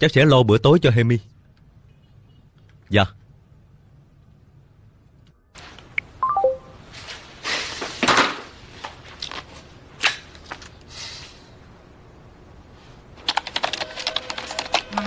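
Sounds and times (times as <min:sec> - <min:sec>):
smartphone falling beeps: 0:06.2 - 0:06.7.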